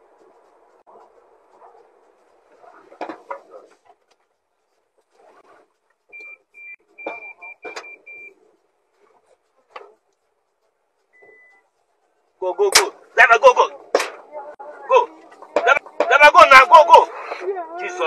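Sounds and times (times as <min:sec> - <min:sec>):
high electronic beeps: 0:06.1 - 0:08.4
sharp bangs and knocks: 0:12.7 - 0:13.1, 0:13.8 - 0:14.3.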